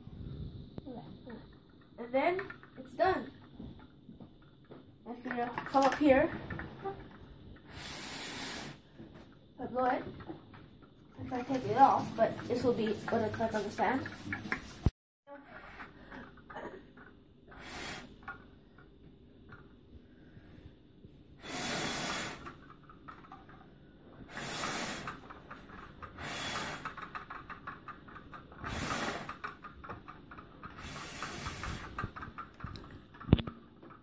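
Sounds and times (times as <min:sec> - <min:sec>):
boy blowing puffs of breath: 0:07.7 - 0:08.9, 0:17.5 - 0:18.3, 0:21.4 - 0:22.5, 0:24.3 - 0:25.2, 0:26.2 - 0:27.0, 0:28.6 - 0:29.4, 0:30.8 - 0:32.1.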